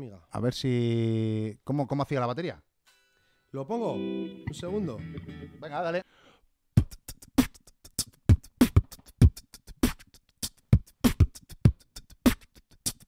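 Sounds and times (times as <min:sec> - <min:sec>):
beatboxed drum beat: 0:06.8 - 0:13.0.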